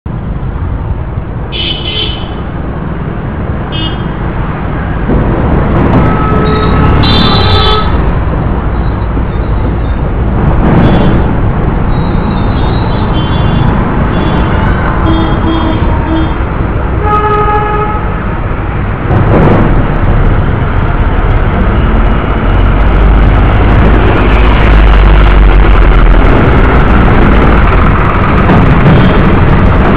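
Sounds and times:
traffic rumble: 0:00.0 - 0:29.9
vehicle horns tooting: 0:06.0 - 0:08.0, 0:12.0 - 0:16.4, 0:17.0 - 0:18.2.

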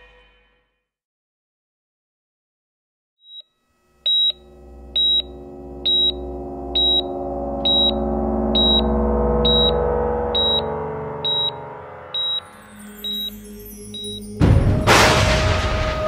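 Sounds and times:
low synthesizer drone: 0:03.7 - 0:14.5
short high beep: 0:04.1 - 0:13.4, 0:14.0 - 0:14.2.

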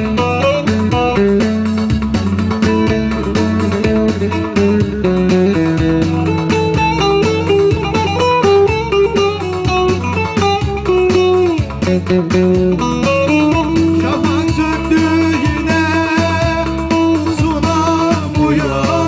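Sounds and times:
bass accompaniment: 0:00.0 - 0:19.0
electric guitar lead line: 0:00.0 - 0:19.0.

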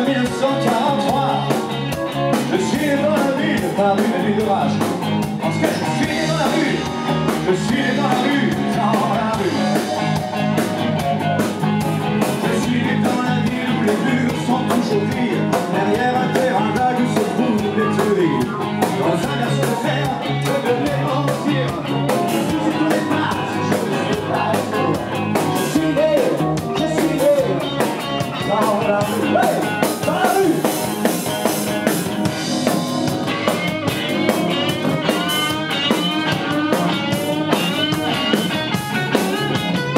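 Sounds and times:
man singing: 0:00.0 - 0:11.0, 0:12.2 - 0:30.8
rock band playing: 0:00.0 - 0:39.9
wavering guitar line: 0:00.0 - 0:39.9.

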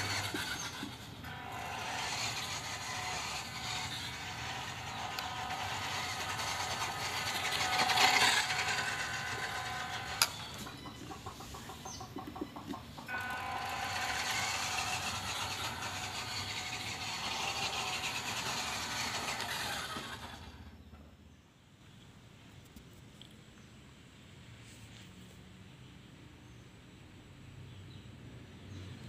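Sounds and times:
toy truck motor and gears whining: 0:00.0 - 0:21.0.

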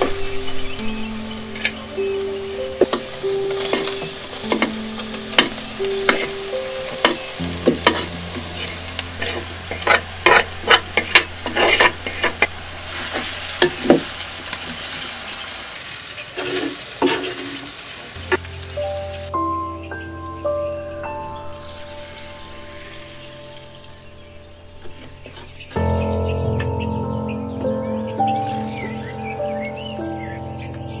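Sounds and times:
food sizzling in a pot: 0:00.0 - 0:26.6
spoon scraping a pot: 0:07.8 - 0:14.1.

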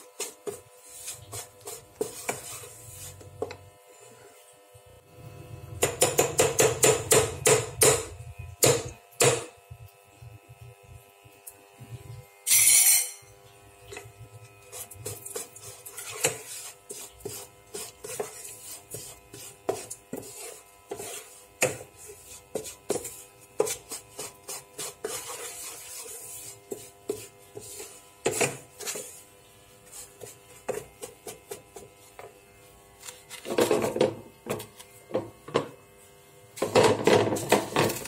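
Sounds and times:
wooden spatula scraping a pan: 0:00.0 - 0:04.4, 0:13.9 - 0:32.4, 0:33.0 - 0:35.8, 0:36.6 - 0:38.0.

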